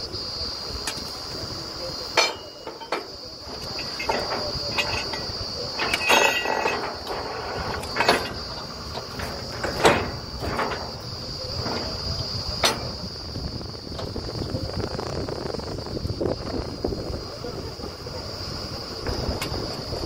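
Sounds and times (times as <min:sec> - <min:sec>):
drilling rig rumble and whine: 0:00.0 - 0:20.0
metal clanks: 0:02.1 - 0:14.2.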